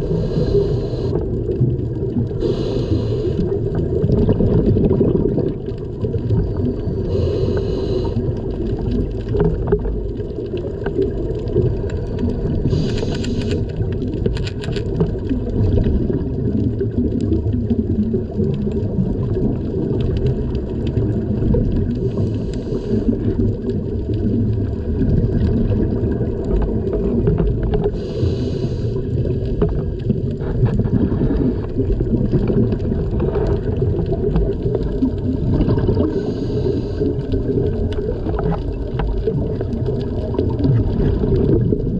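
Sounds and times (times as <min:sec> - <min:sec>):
hissing exhaled bubbles: 0:00.0 - 0:41.9
muffled low underwater rumble: 0:00.0 - 0:41.9.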